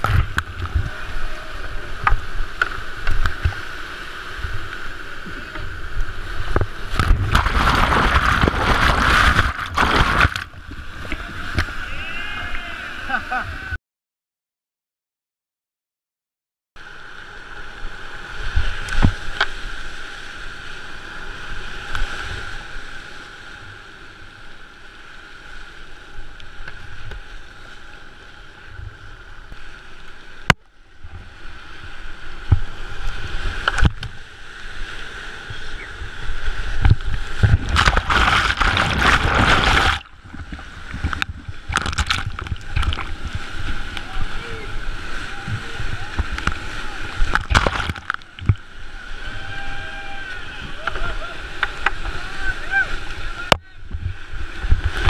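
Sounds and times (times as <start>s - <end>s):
paddle strokes splashing: 0.0s - 13.0s, 30.3s - 55.0s
whitewater rushing: 0.0s - 13.8s, 30.1s - 55.0s.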